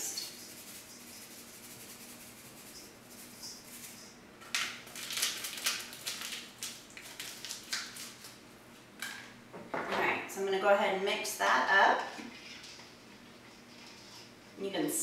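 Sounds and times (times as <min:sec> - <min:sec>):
paper-foil packet tearing and crinkling: 0:04.8 - 0:08.4.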